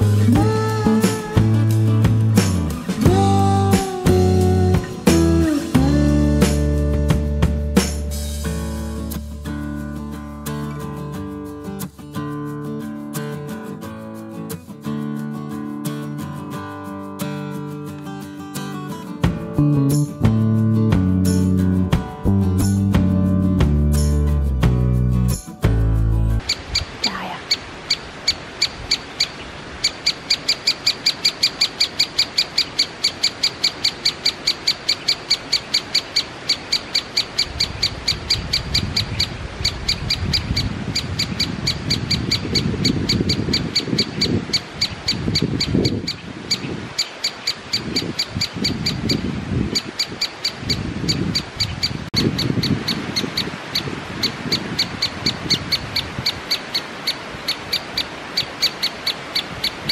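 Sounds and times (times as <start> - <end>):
woodpecker chick begging calls: 26.4 - 59.9.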